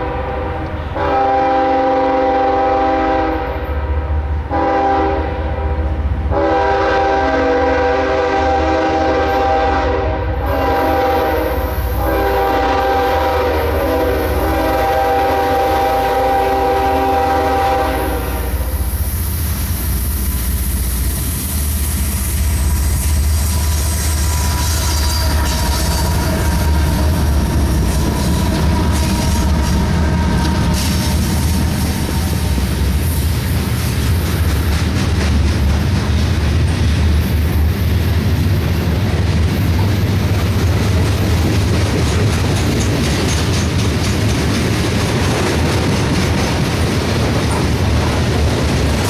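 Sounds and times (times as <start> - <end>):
locomotive air horn blasts: 0.0 - 19.0, 23.4 - 32.9
wheels on rails: 18.8 - 49.0.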